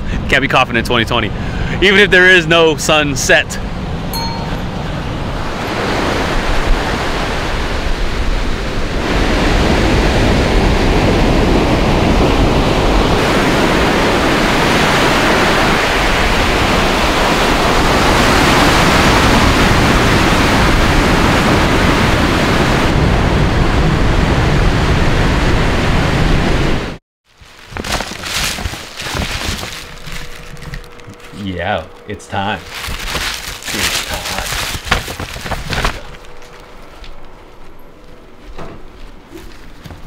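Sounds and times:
ocean surf breaking: 3.8s - 27.0s.

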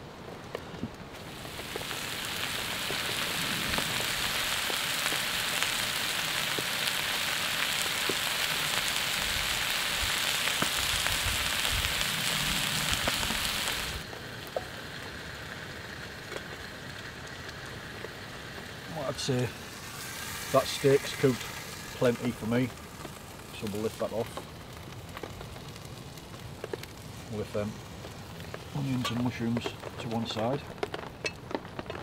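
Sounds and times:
background hiss: 0.0s - 32.0s
food sizzling in a pan: 1.2s - 32.0s.

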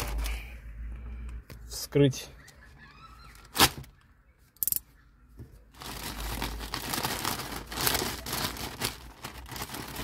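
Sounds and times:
plastic bag crinkling: 5.8s - 10.0s.

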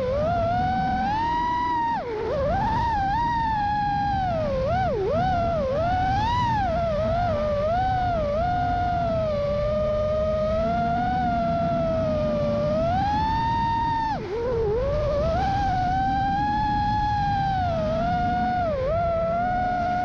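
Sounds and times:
drone motors whining: 0.0s - 20.0s
wind rush: 0.0s - 20.0s.

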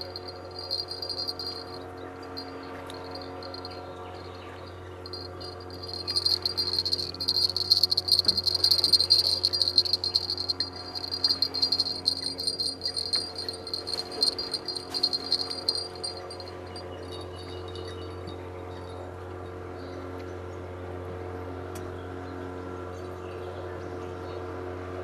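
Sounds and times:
insect trilling: 0.0s - 1.8s, 5.1s - 16.5s
low hum: 0.0s - 18.2s.

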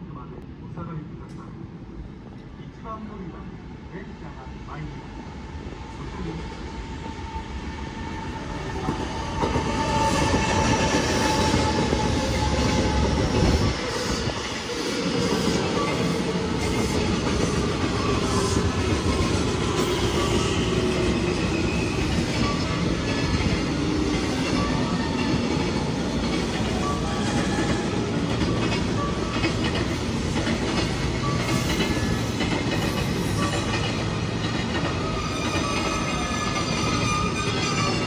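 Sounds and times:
train wheels clacking over rail joints: 21.5s - 38.0s.

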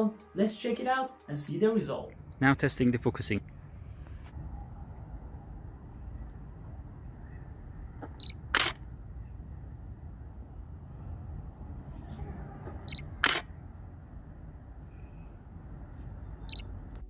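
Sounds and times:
camera focus beep: 8.2s - 8.8s, 12.8s - 13.5s, 16.4s - 16.7s
camera shutter click: 8.5s - 8.8s, 13.2s - 13.5s.

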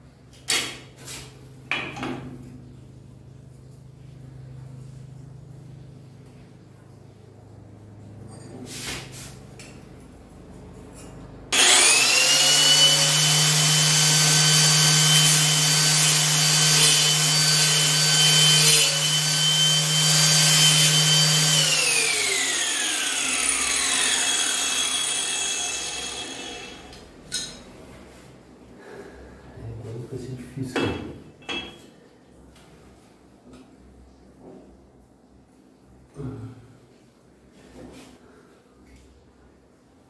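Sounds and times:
angle grinder cutting tile: 11.5s - 27.0s.

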